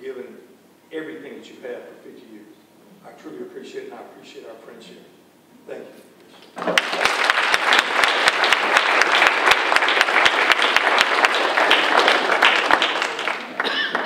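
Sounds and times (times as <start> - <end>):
audience applauding: 6.6 - 14.0.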